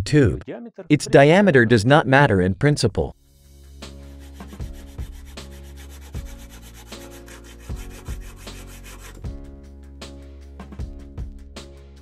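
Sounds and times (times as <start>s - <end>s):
hacksaw cutting metal tube: 4.0s - 9.2s.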